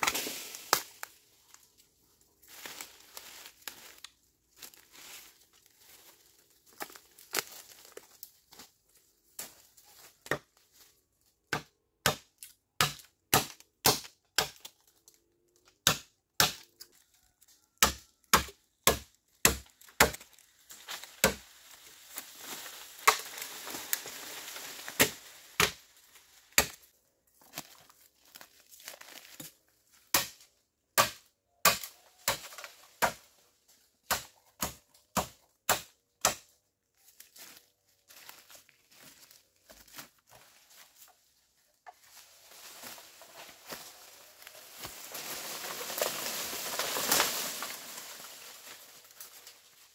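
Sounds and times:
blade chopping bamboo: 11.5 - 14.7, 15.8 - 16.6, 17.8 - 20.3, 21.2 - 21.4, 25.0 - 25.8, 26.6 - 26.8, 30.1 - 30.4, 31.0 - 33.2, 34.0 - 36.5.

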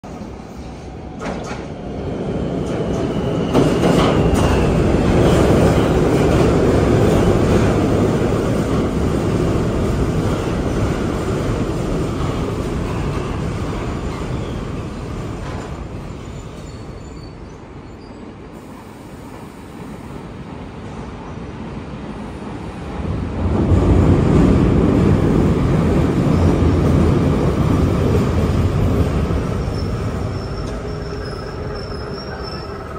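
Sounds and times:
train wheels rumbling on rail: 0.0 - 32.9
high wheel squeal: 16.1 - 18.2, 29.6 - 32.9.

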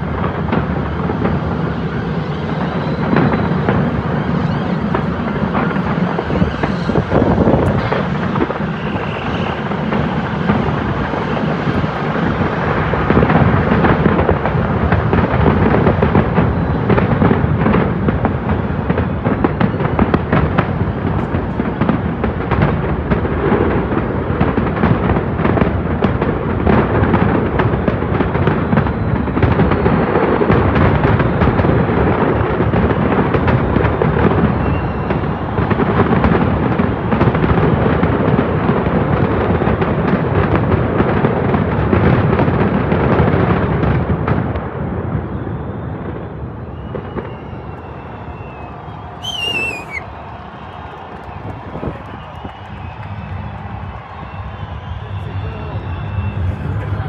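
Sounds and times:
continuous rumble: 0.0 - 27.4, 56.3 - 57.0
fireworks bangs and crackles: 0.0 - 57.0.

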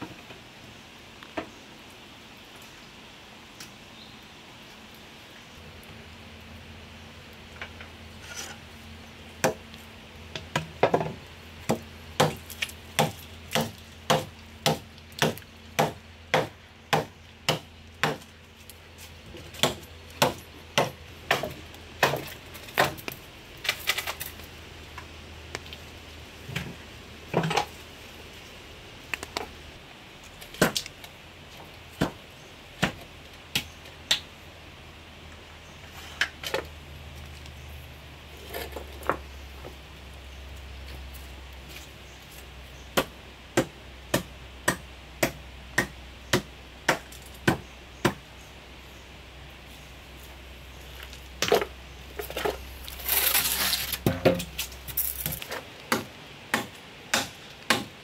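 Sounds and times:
machete chopping wood: 10.5 - 18.2, 19.6 - 23.0, 30.6 - 30.8, 32.8 - 34.2, 43.0 - 48.2, 55.9 - 57.9.

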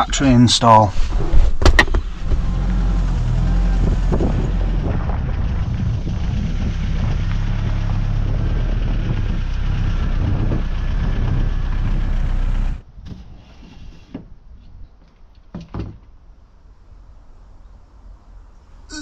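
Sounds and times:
engine idling: 1.8 - 12.8.

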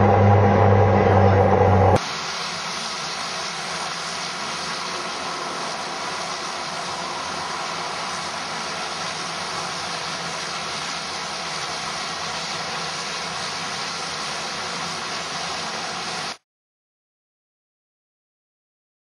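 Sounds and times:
turboprop plane engines roaring: 0.0 - 2.0, 2.7 - 11.7.

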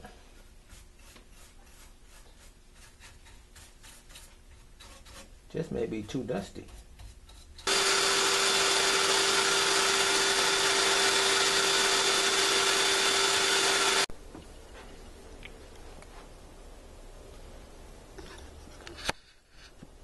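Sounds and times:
small electric motor blowing air: 7.7 - 14.1.

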